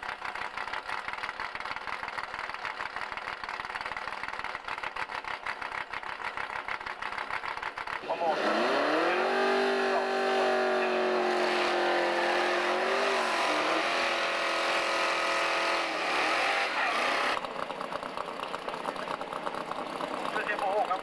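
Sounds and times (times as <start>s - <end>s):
drag car engine idling: 0.0s - 8.3s, 17.0s - 21.0s
engine revving in burnout: 8.0s - 17.4s.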